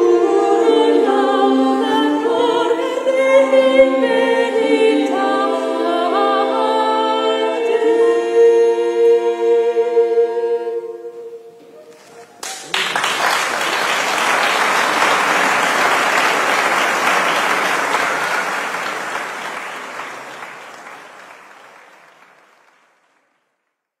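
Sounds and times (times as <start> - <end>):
audience applause: 12.4 - 23.5.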